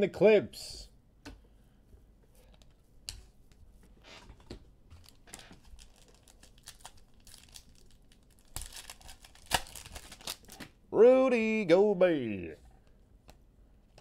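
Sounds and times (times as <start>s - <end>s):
foil wrapper crinkling and tearing: 5.0s - 10.6s.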